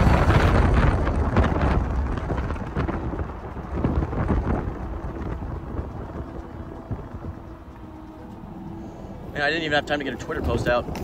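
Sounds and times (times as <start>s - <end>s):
vehicle road noise: 0.0s - 11.0s
wind buffeting microphone: 0.0s - 11.0s.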